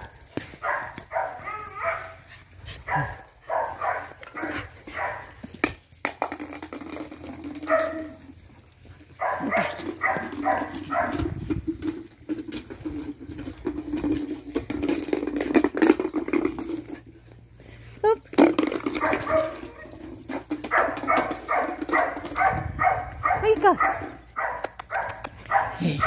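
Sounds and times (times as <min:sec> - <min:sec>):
puppies yipping: 0:00.0 - 0:05.4, 0:07.4 - 0:11.6, 0:18.8 - 0:26.0.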